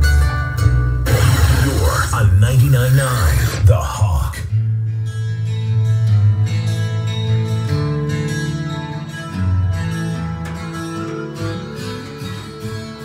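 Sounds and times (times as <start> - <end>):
rock music over loudspeakers: 0.0 - 4.6
bass line: 0.0 - 5.3.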